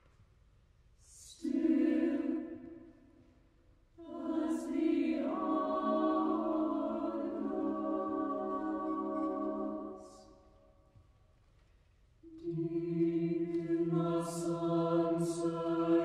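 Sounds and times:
choir singing unaccompanied: 1.2s - 2.9s, 4.0s - 10.5s, 12.3s - 16.0s.

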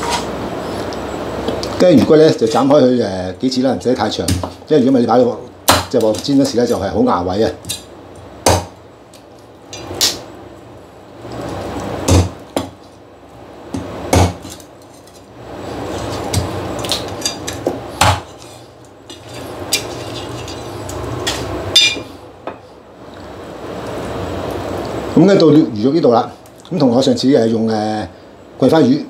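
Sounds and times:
cleaver chopping fish bone on wood: 4.2s - 4.6s, 5.7s - 6.3s, 8.4s - 8.8s, 12.1s - 12.8s, 13.7s - 14.6s, 17.6s - 18.3s.

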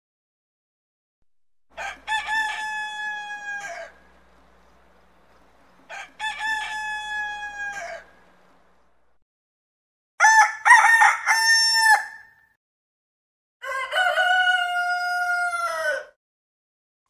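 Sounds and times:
rooster crowing: 1.7s - 8.9s, 10.2s - 12.4s, 13.6s - 16.2s.

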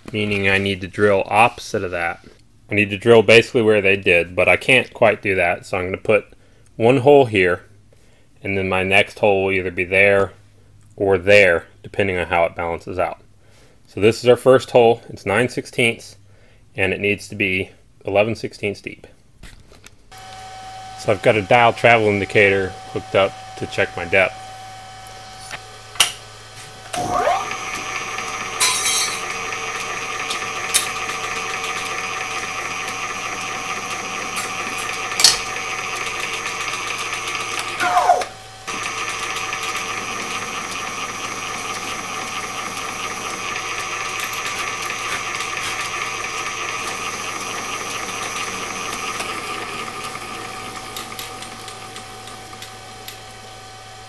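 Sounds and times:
drill press motor whining: 20.1s - 54.0s.

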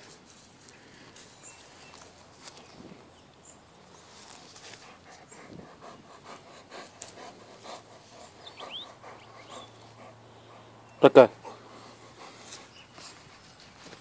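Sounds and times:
dog panting: 4.2s - 14.0s.

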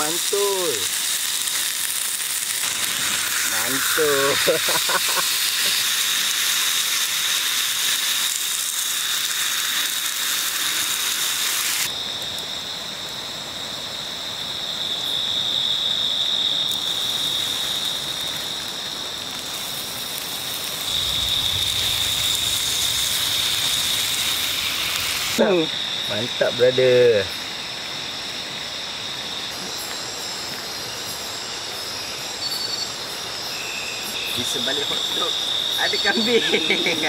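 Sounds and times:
meat sizzling in a skillet: 0.0s - 11.9s, 16.7s - 26.2s, 33.5s - 37.0s.

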